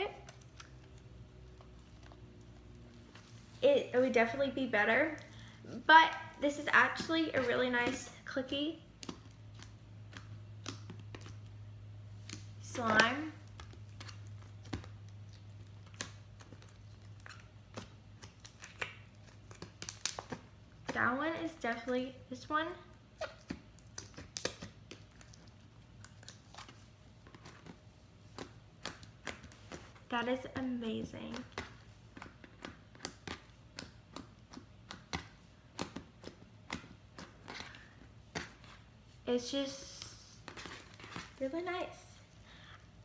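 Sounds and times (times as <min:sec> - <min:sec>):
low steady hum: 0:00.0 - 0:43.0
slime clicking and popping: 0:08.9 - 0:11.6, 0:12.2 - 0:20.6, 0:23.3 - 0:26.6.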